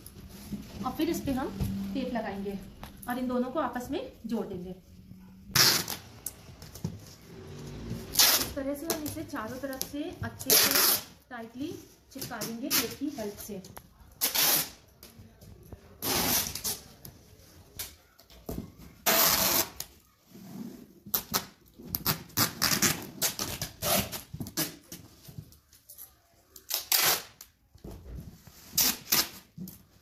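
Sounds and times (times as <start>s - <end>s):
packing tape pulled off roll: 19.0s - 19.9s, 21.1s - 24.8s, 26.6s - 27.6s, 28.7s - 29.6s.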